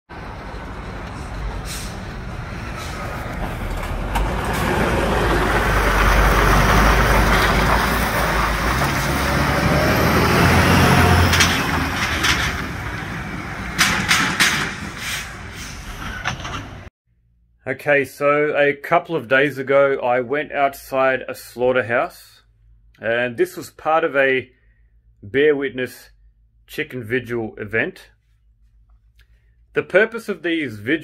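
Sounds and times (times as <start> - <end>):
truck engine passing: 0.1 - 16.9.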